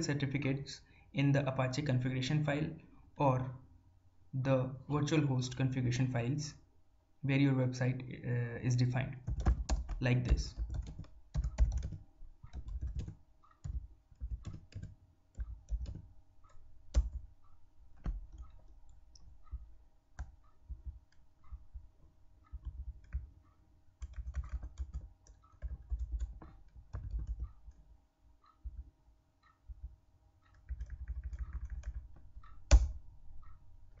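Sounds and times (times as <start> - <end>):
faint steady hum: 0.0 - 34.0
keyboard typing: 9.2 - 34.0.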